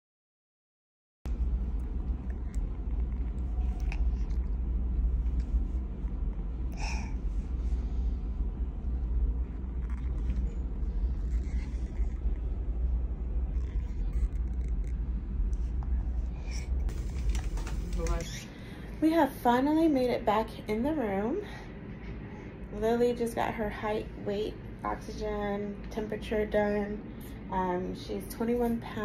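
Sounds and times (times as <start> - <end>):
steady low rumble: 1.3 - 29.0.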